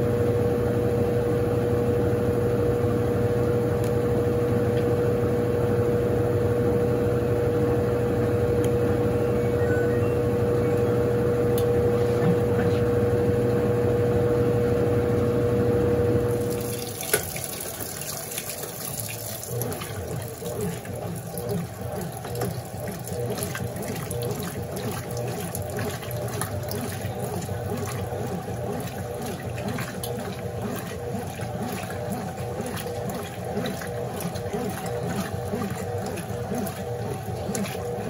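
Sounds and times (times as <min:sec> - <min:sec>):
washing machine motor whine: 0:00.0 - 0:38.0
water pouring into tub: 0:16.3 - 0:38.0.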